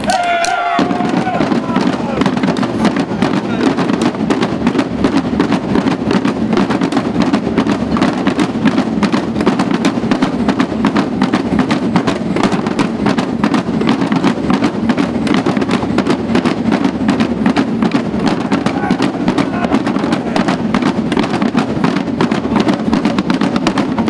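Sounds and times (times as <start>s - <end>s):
street drum band: 0.0s - 24.0s.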